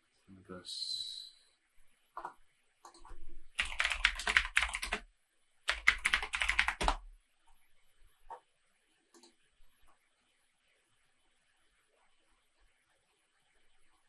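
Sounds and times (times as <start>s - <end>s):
computer keyboard typing: 2.9s - 5.1s, 5.7s - 7.1s.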